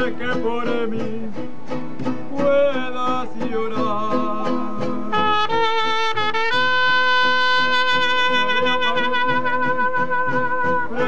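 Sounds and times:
lower brass line: 5.1 - 11.0
trumpet holding long note: 5.1 - 11.0.

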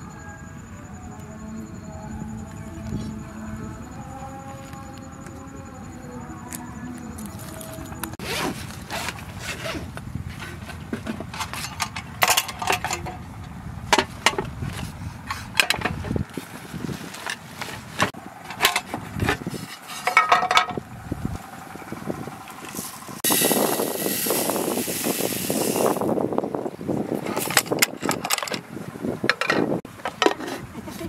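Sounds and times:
bag rustling: 7.2 - 11.8
metal tins clinking: 19.7 - 20.8.

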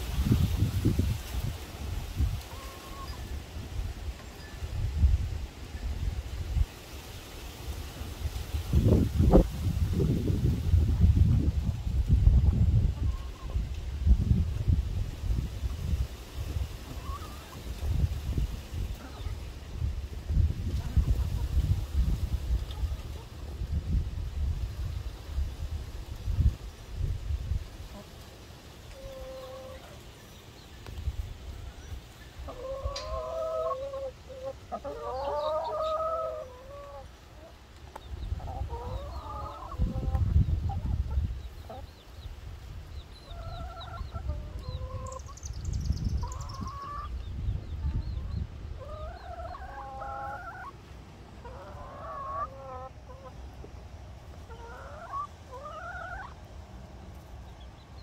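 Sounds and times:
hens clucking: 0.2 - 4.3, 10.0 - 13.8, 16.5 - 18.1, 18.8 - 19.5, 20.4 - 23.8, 27.8 - 45.4, 46.1 - 57.8.

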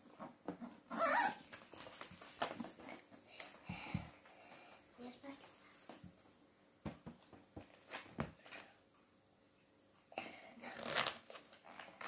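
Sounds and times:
book pages flipping: 1.4 - 3.5, 10.7 - 12.0.

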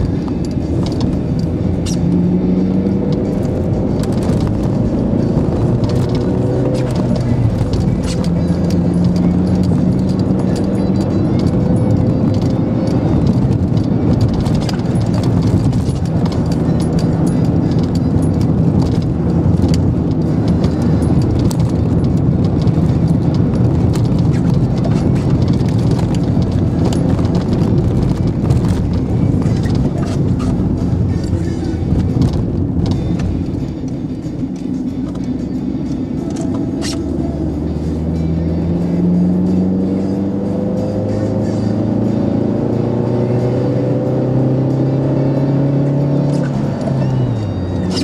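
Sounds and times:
car engine hum: 0.0 - 48.0
tyre road roar: 0.0 - 48.0.

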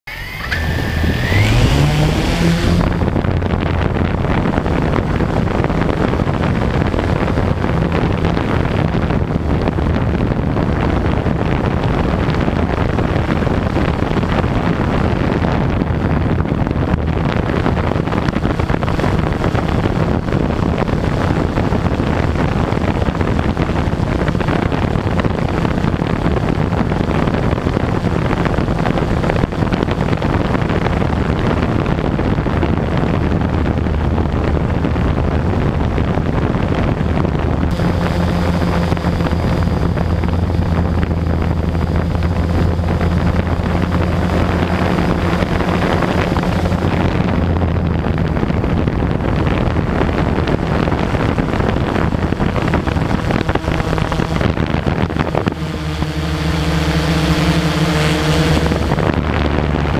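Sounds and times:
drone propeller buzz: 0.0 - 59.9.

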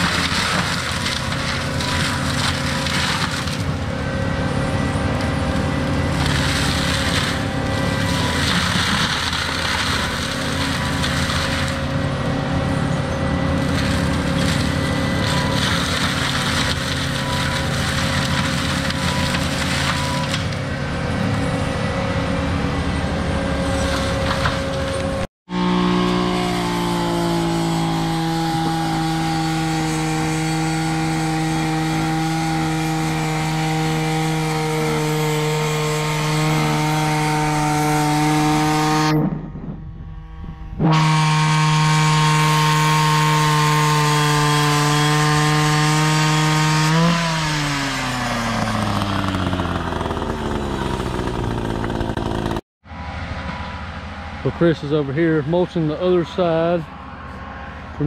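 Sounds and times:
wood cracking and splintering: 0.0 - 3.9, 5.1 - 12.0, 13.5 - 20.7, 23.8 - 25.3, 43.4 - 52.6
diesel land-clearing machine running: 0.0 - 58.0
whine sliding in pitch: 36.2 - 43.2.

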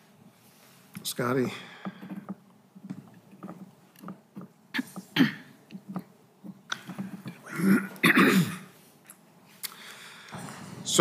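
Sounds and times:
person clearing throat or mumbling: 4.8 - 5.5, 7.5 - 8.7.

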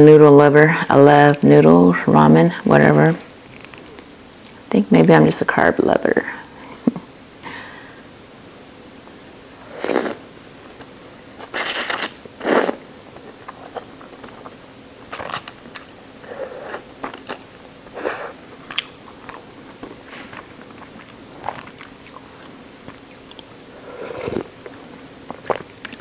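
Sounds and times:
wet chewing: 3.2 - 4.6, 18.7 - 26.0
noodles being slurped: 11.4 - 12.8, 20.2 - 24.7.

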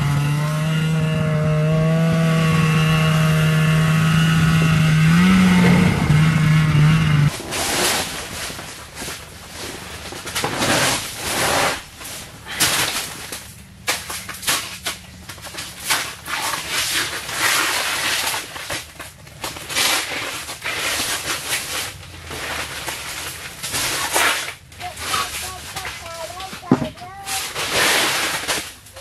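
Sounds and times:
carpet mat rustling and scraping: 7.3 - 12.9.

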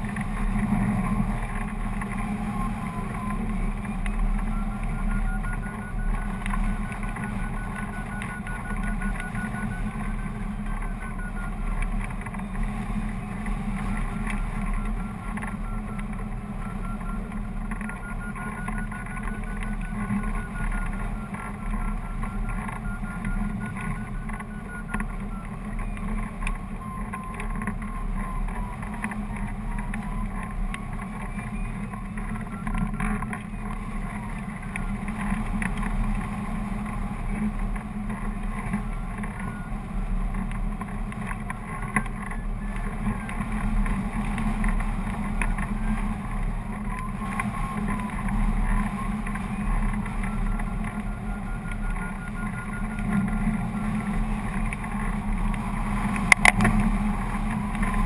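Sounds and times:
beeping tone rising and falling: 0.0 - 36.0.

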